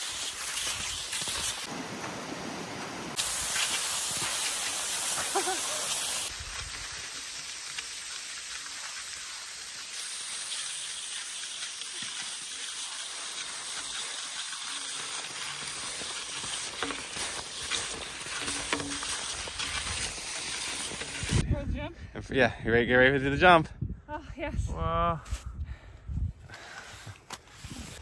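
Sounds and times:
skis gliding on snow: 0.0s - 21.4s.

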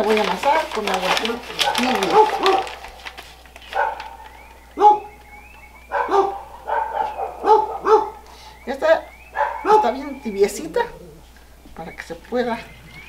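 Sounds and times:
dog barking: 1.5s - 5.2s, 5.8s - 8.6s, 9.3s - 10.3s
faint bird chirps: 3.8s - 13.0s.

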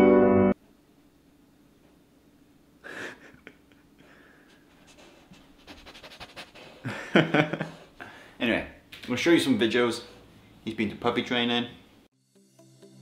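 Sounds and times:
puppy panting: 4.5s - 6.9s.

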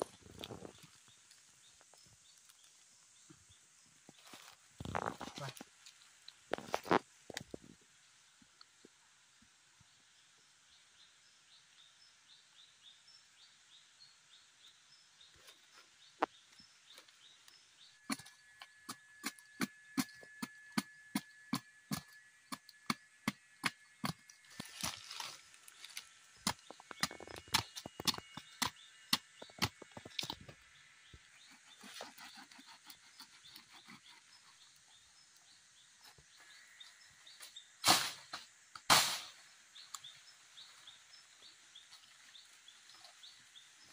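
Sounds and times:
forest background hum: 0.0s - 43.9s.

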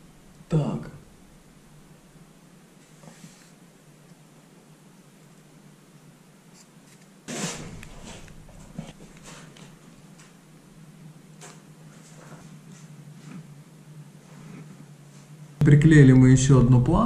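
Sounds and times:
low steady hum: 0.0s - 17.0s
molding scraping: 6.6s - 9.7s.

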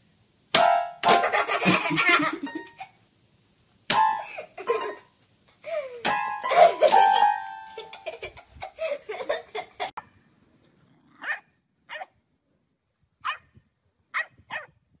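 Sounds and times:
dog barking: 11.2s - 12.1s, 13.2s - 13.5s, 14.2s - 14.7s.

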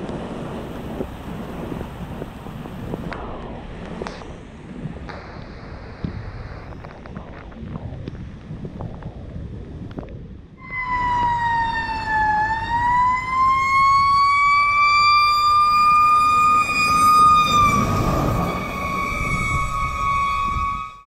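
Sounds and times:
truck engine and road noise: 0.0s - 21.0s
fire truck siren wailing: 10.6s - 21.0s.

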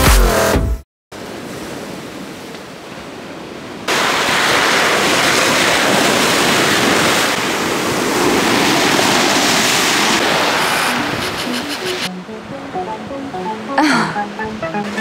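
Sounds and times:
surf on pebble beach: 1.2s - 12.1s.

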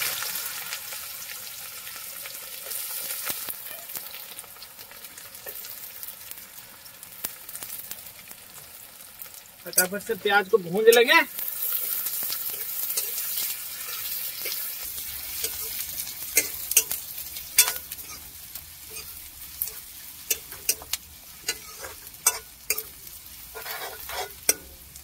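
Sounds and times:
onions sizzling in oil: 0.0s - 25.0s
utensil scraping a pan: 11.6s - 24.9s.

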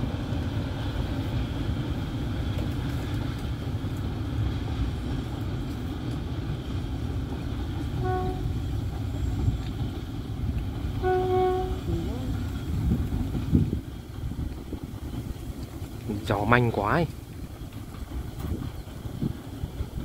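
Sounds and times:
locomotive rumbling: 0.0s - 20.0s
train horn toot: 8.0s - 8.7s, 10.9s - 12.3s.

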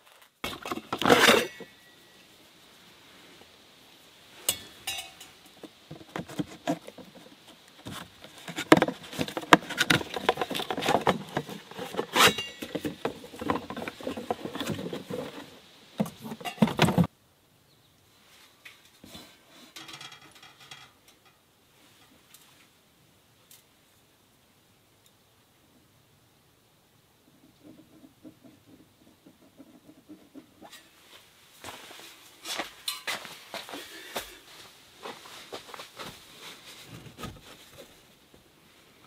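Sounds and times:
metal pipes clinking: 0.5s - 2.2s, 4.4s - 5.6s, 12.2s - 14.7s, 32.8s - 33.4s
cardboard rustling and scraping: 5.7s - 17.1s, 35.0s - 38.2s.

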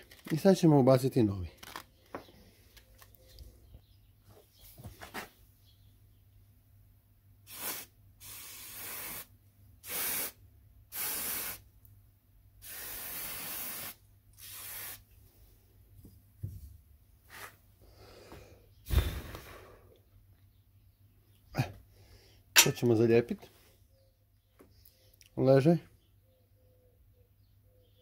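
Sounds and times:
aerosol spray can hissing: 7.5s - 11.6s, 12.6s - 15.0s.

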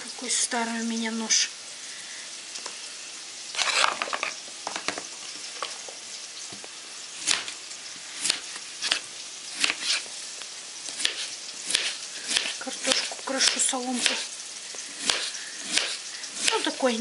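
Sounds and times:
onions sizzling in a pan: 0.0s - 17.0s
knife on plastic cutting board: 3.6s - 4.4s, 8.2s - 10.1s, 10.9s - 14.3s, 15.0s - 16.7s.

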